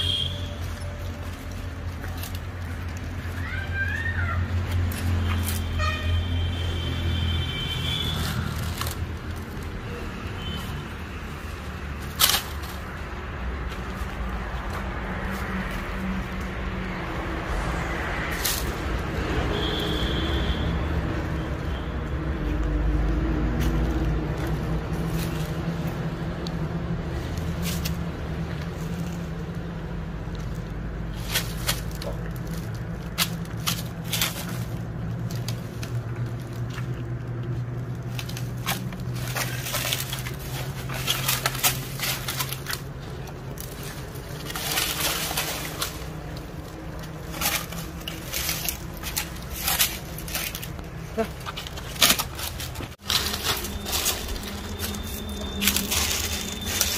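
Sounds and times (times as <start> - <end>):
bears rustling in dry leaves: 0.0 - 56.9.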